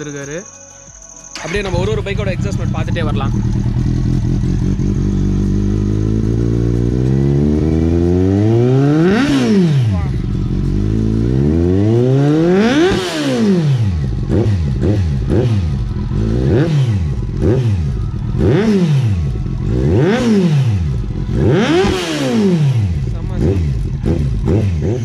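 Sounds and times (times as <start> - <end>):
motorcycle engine revving: 1.4 - 25.0.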